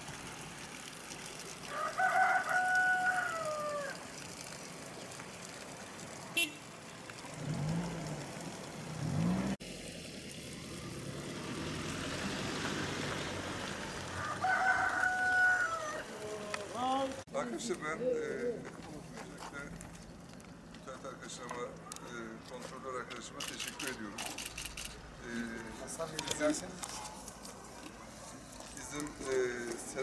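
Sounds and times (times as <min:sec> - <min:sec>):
rooster crowing: 0:01.7 - 0:04.0, 0:14.2 - 0:16.5.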